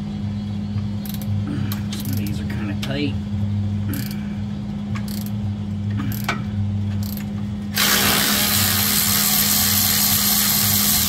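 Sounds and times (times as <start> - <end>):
steady low hum: 0.0 - 11.0
electric ratchet running: 5.0 - 5.3, 7.8 - 11.0
ratchet clicking on bolt: 5.0 - 5.4, 7.0 - 7.3.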